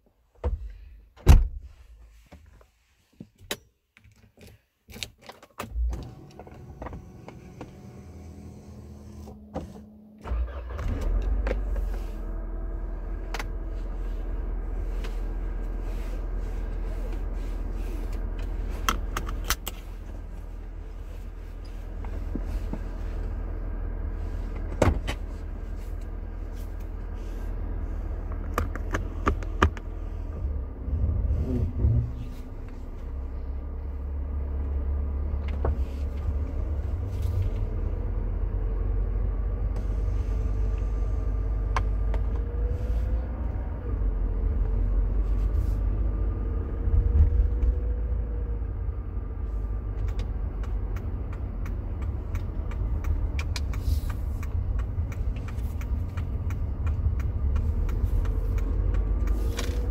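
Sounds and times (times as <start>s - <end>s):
road rumble: 5.6s - 59.9s
car engine running: 6.2s - 59.9s
sharp clicks: 50.0s - 59.8s.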